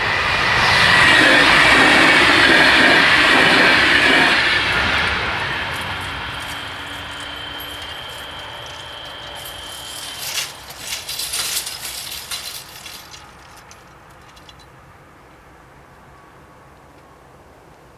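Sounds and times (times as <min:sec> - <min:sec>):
barrier arms whining: 0:03.4 - 0:14.6
barrier arms clinking and rattling: 0:05.7 - 0:14.7.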